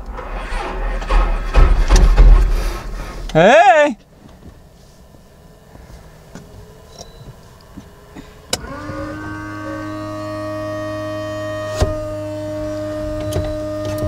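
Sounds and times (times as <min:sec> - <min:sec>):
electric motor whining: 0:08.5 - 0:14.0.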